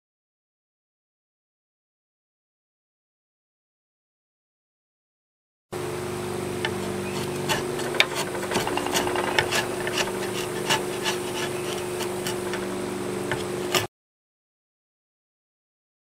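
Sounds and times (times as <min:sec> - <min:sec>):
steady low hum: 0:05.8 - 0:13.9
drawknife scraping wood: 0:06.6 - 0:13.9
wood shavings snapping: 0:06.7 - 0:12.7.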